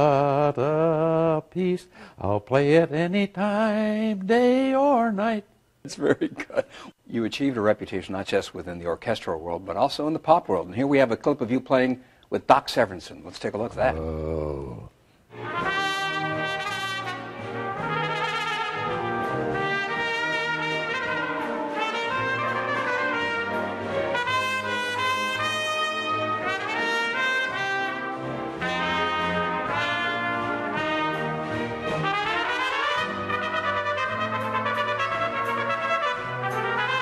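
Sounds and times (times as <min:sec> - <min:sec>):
symphony orchestra: 0:15.3 - 0:37.0
trumpets playing fast passage: 0:15.3 - 0:37.0.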